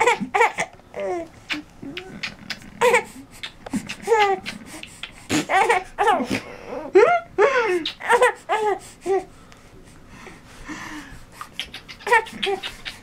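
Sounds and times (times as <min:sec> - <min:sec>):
baby babbling: 0:00.0 - 0:04.8
baby giggling: 0:00.0 - 0:08.8, 0:11.4 - 0:13.0.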